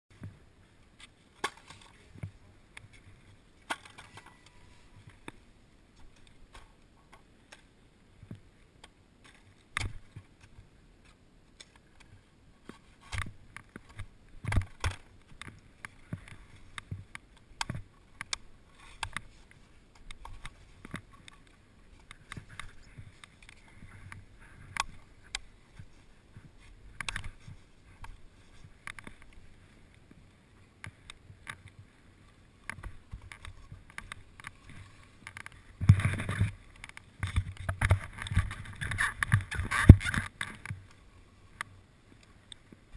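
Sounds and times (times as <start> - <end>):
skis sliding on hard snow: 31.6 - 41.4
ski poles knocking: 32.7 - 40.8.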